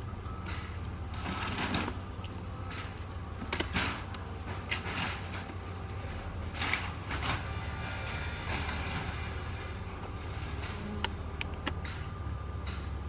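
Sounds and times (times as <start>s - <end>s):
wooden frame rustling and scraping: 2.7s - 11.0s.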